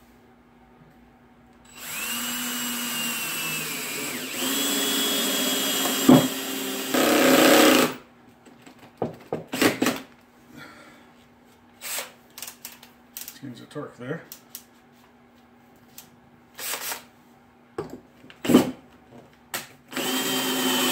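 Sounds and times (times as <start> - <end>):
cordless drill driving screw: 1.7 - 8.0, 19.9 - 20.9.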